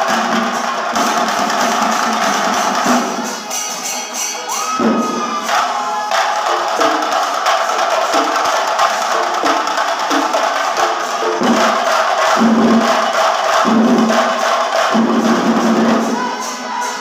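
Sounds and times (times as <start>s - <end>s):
fast drumming: 0.0s - 17.0s
crowd cheering and shouting: 3.2s - 9.4s, 12.4s - 17.0s.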